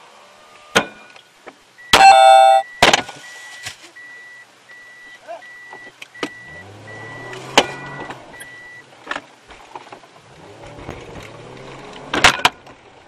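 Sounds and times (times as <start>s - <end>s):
car engine humming: 0.0s - 2.7s, 5.3s - 13.0s
warning chime beeping: 1.9s - 2.8s.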